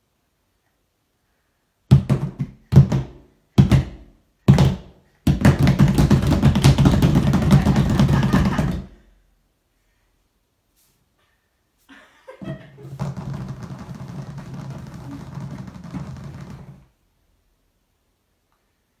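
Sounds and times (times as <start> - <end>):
hands drumming on plastic tubs: 1.9 - 9.0, 12.7 - 16.9.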